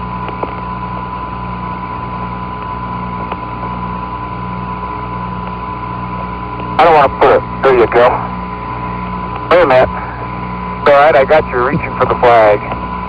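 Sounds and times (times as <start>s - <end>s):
radio hum and hiss: 0.0s - 13.0s
thin constant tone: 0.0s - 13.0s
faint radio clicks: 12.6s - 12.8s.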